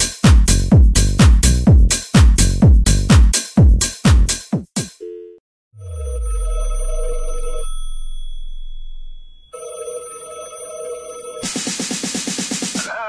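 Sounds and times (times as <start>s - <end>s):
electronic dance beat: 0.0s - 5.0s, 11.4s - 13.0s
telephone ringtone ringing: 5.0s - 11.8s.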